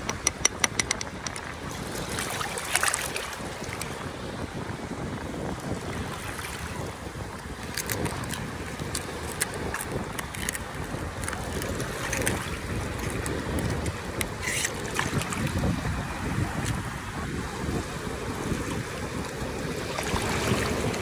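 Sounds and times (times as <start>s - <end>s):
sharp clicks: 0.0s - 1.4s
water lapping at shore: 0.0s - 21.0s
wind buffeting microphone: 0.0s - 21.0s.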